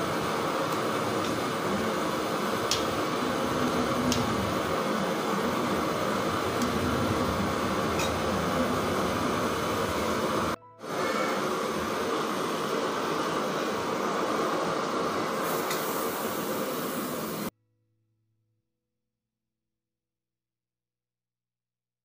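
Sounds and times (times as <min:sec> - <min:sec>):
background hiss: 0:00.0 - 0:17.5.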